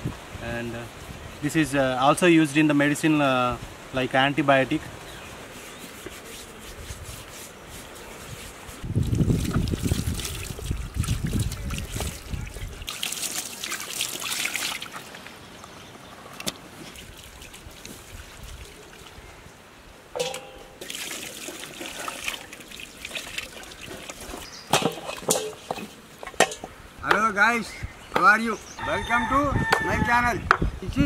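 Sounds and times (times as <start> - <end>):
water pouring and splashing: 8.1 - 15.4, 16.4 - 19.2, 20.1 - 26.7.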